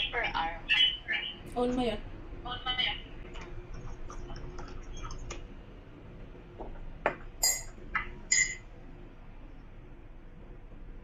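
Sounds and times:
spoon clinking against ceramic mug: 7.4 - 8.6.

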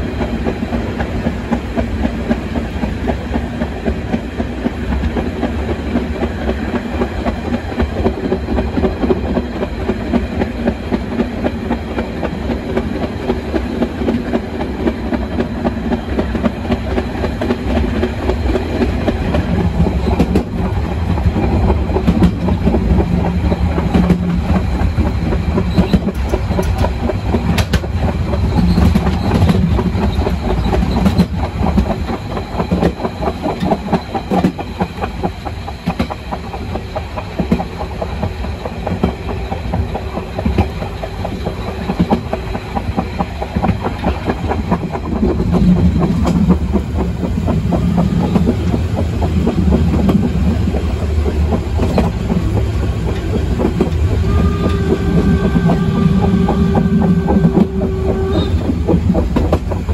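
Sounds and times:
train wheels rumbling: 0.0 - 59.9
wheels clickety-clack over rail joints: 0.0 - 59.9.

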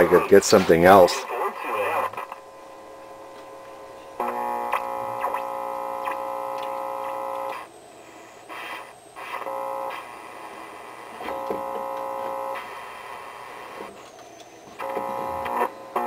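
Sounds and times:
radio static and crackle: 0.0 - 16.0
radio buzzing whistle: 4.2 - 16.0.

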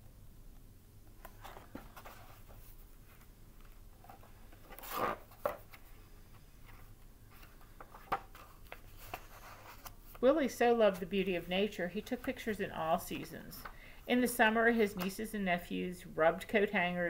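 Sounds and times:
book pages rustling and turning: 1.1 - 11.2.

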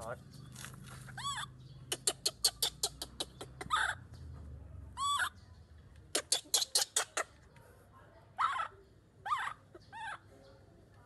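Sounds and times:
baby monkey calling: 1.1 - 4.1, 5.0 - 5.4, 6.1 - 7.3, 8.4 - 10.2.

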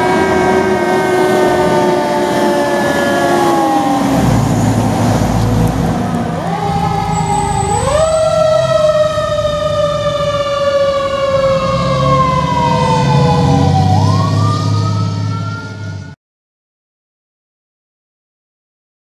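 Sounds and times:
fire engine sirens wailing: 0.0 - 16.2
truck engine running: 4.0 - 16.1.

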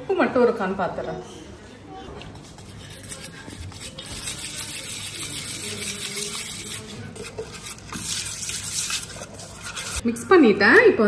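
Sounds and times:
spoon scraping paste on a plate: 2.1 - 10.0.

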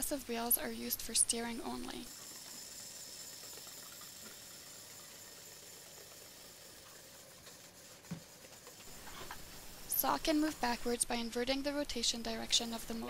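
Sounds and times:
faint background hiss: 8.1 - 13.0.

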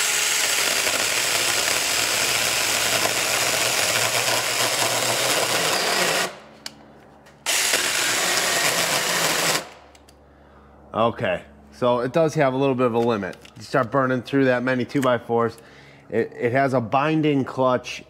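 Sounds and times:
chainsaw cutting wood: 0.0 - 6.5, 7.4 - 9.9.

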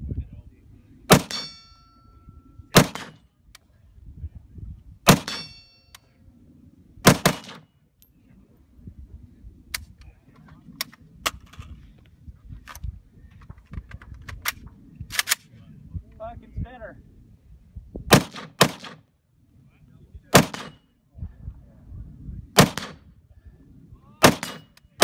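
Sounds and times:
rifle shots: 1.1 - 1.5, 2.7 - 3.2, 5.1 - 5.5, 7.0 - 7.6, 18.1 - 19.0, 20.3 - 20.8, 22.6 - 23.0, 24.2 - 24.7
steel target ringing: 1.1 - 2.4, 5.2 - 6.0.

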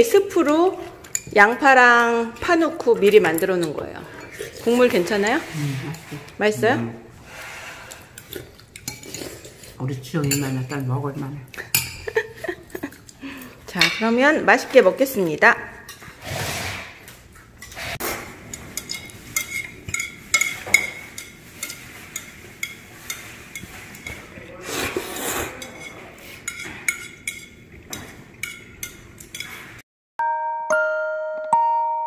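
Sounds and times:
utensils clicking on ceramic dishes: 0.0 - 6.4, 7.9 - 10.9, 11.5 - 16.2, 17.6 - 24.3, 25.6 - 29.8.

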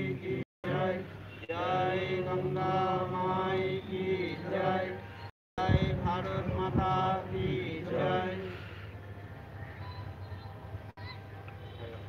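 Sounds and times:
voices chanting: 0.0 - 8.9.

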